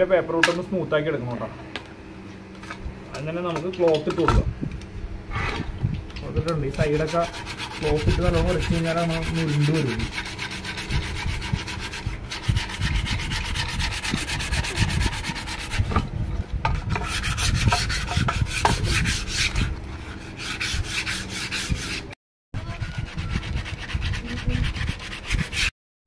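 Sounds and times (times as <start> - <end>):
sandpaper rubbing on wood: 6.6 - 16.0, 16.9 - 25.7.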